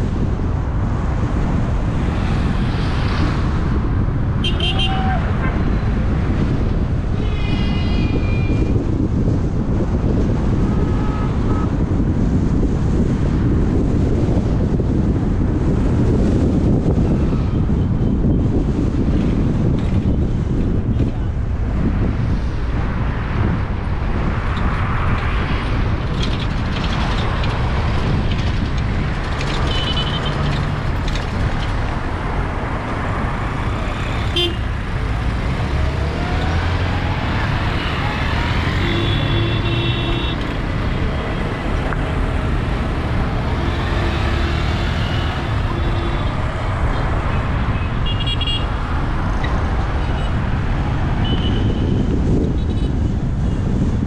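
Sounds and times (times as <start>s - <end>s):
car engine and road rumble: 0.0s - 54.0s
vehicle horns tooting: 4.4s - 5.3s, 10.6s - 11.8s, 29.6s - 30.5s, 34.0s - 34.8s, 37.7s - 40.5s, 43.9s - 46.5s, 47.8s - 48.7s, 51.2s - 52.0s.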